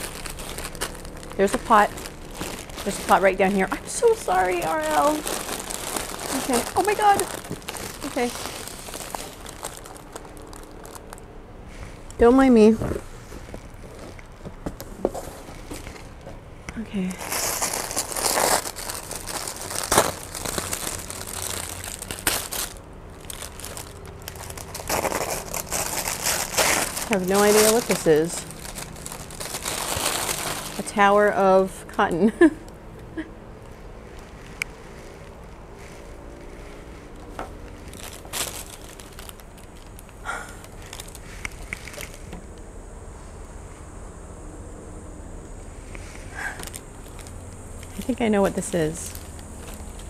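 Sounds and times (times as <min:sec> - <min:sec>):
paper crinkling and rustling: 0:00.0 - 0:12.0, 0:12.6 - 0:16.4, 0:17.1 - 0:31.3, 0:33.6 - 0:42.4, 0:46.1 - 0:50.0
sharp paper crackles: 0:00.0 - 0:12.0, 0:17.1 - 0:31.3, 0:33.6 - 0:42.4, 0:46.2 - 0:50.0.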